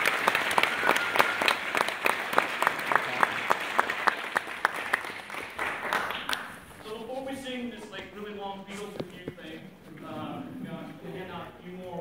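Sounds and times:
nearby hands clapping loud: 0:00.0 - 0:06.7
audience applauding: 0:00.0 - 0:06.8.

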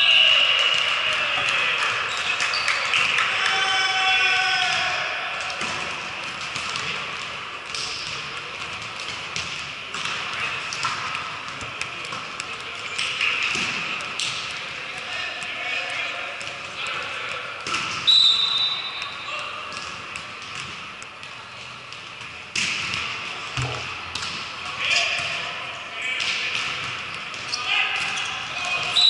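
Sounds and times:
ball being hit and bouncing: 0:22.5 - 0:24.5.

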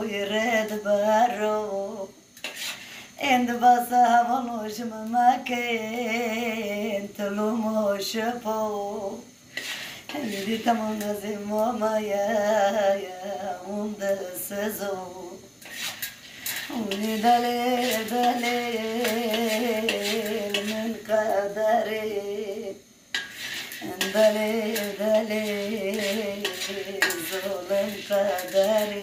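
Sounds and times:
woman singing unaccompanied: 0:00.0 - 0:02.3, 0:03.2 - 0:09.3, 0:10.1 - 0:15.5, 0:16.6 - 0:22.9, 0:23.7 - 0:29.0
metal spoon stirring in a pan: 0:02.4 - 0:03.0, 0:09.5 - 0:11.2, 0:15.6 - 0:21.4, 0:23.1 - 0:29.0.

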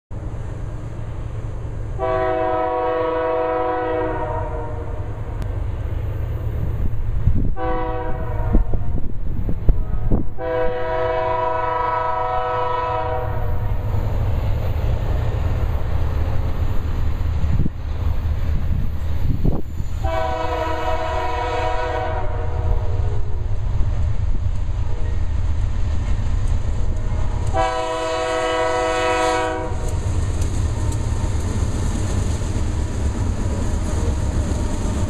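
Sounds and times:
train air horn blasts: 0:02.0 - 0:05.3, 0:07.5 - 0:09.1, 0:09.8 - 0:13.7, 0:20.0 - 0:23.5, 0:27.1 - 0:30.0.

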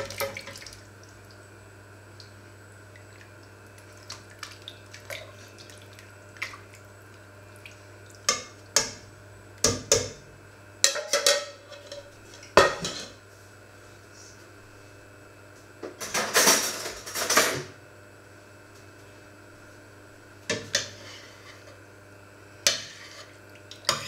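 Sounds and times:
metallic clanks of pots: 0:10.9 - 0:13.1.

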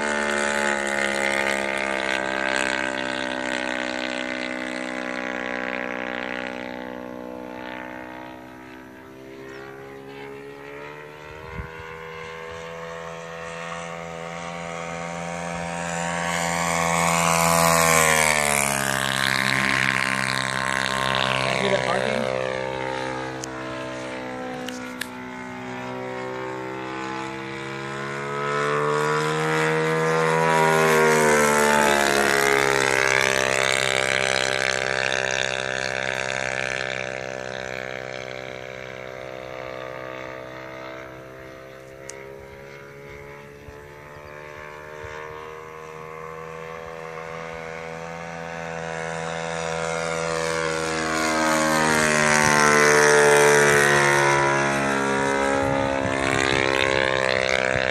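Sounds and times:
model plane motor droning: 0:00.0 - 0:57.9.

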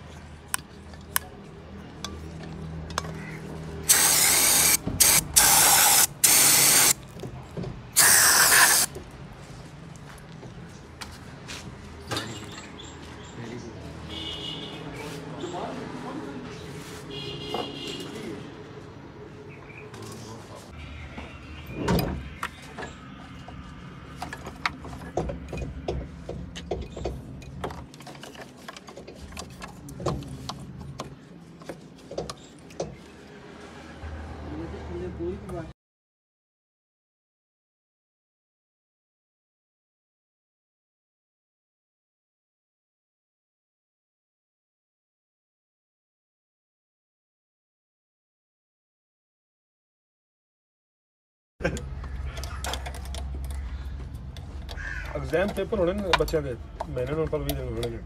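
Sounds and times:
aerosol spray hissing: 0:03.9 - 0:07.0, 0:08.0 - 0:08.9.

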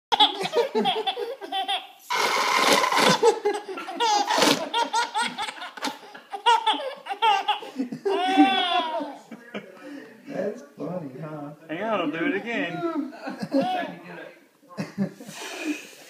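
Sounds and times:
baby laughing: 0:00.1 - 0:09.3
whoopee cushion raspberry: 0:02.1 - 0:03.3.

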